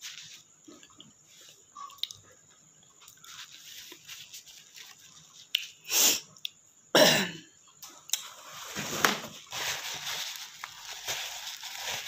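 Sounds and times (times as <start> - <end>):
rustling and handling noise: 0.0 - 1.8, 2.9 - 5.8, 8.2 - 12.0
woman coughing: 7.0 - 7.5.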